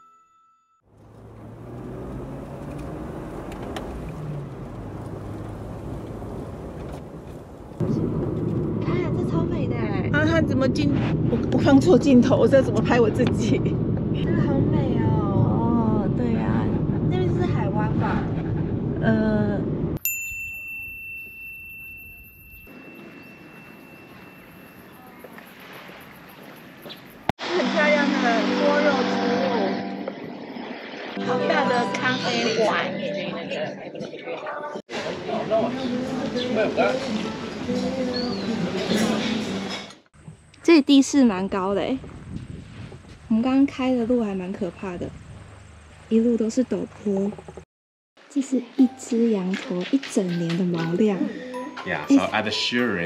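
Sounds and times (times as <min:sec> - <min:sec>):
car engine and road rumble: 0:00.9 - 0:20.0
bright ding: 0:20.0 - 0:25.3.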